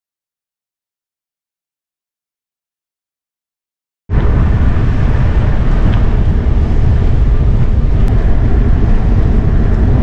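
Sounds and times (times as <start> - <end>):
wind buffeting microphone: 4.1 - 10.0.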